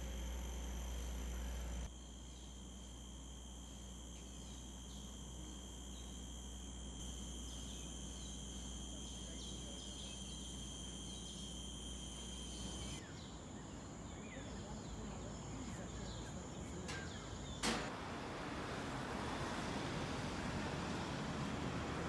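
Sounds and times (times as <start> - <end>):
high-pitched insect drones: 0.0 - 17.7.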